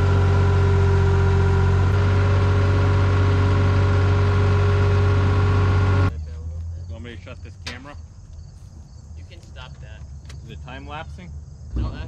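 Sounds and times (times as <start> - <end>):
engine running steadily: 0.0 - 6.7.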